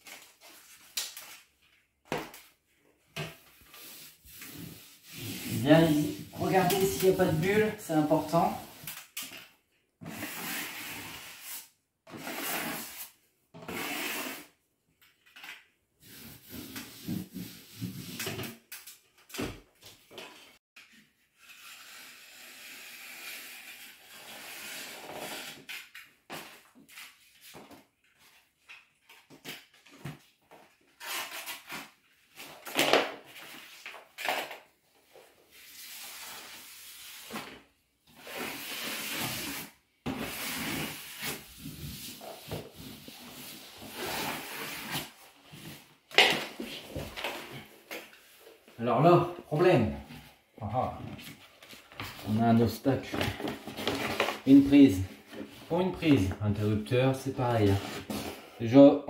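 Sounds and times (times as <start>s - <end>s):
sponge rubbing wallpaper: 3.7s - 8.8s.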